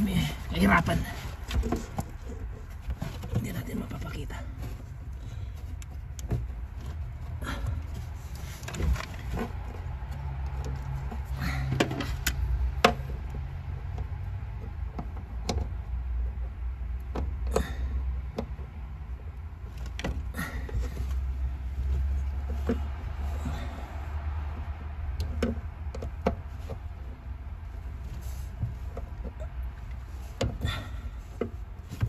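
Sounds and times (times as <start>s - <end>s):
plastic and metal parts rattling: 0.2s - 23.8s.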